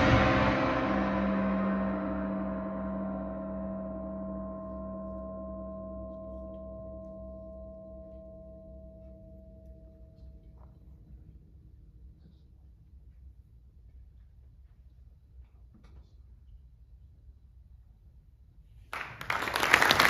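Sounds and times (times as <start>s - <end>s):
large gong ringing: 0.0s - 10.4s.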